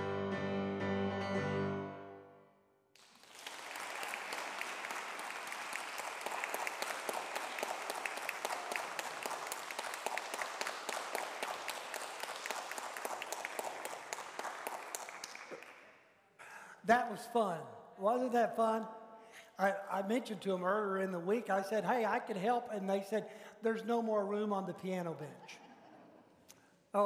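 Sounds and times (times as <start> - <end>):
congregation applauding: 3.0 - 16.0.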